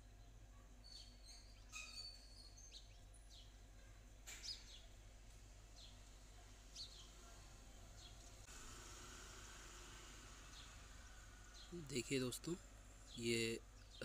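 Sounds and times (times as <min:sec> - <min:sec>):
low steady hum: 0:00.0 - 0:14.0
bird chirps: 0:00.2 - 0:05.0.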